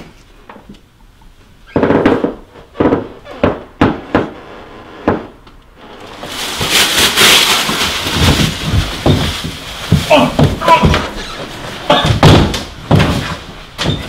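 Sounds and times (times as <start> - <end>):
banging on wooden door: 8.2 - 11.2, 11.9 - 14.0.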